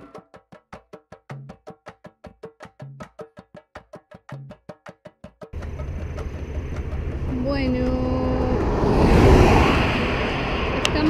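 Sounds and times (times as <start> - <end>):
car passing: 5.6 - 11.0
road traffic: 5.6 - 11.0
wind rushing over microphone: 6.0 - 11.0.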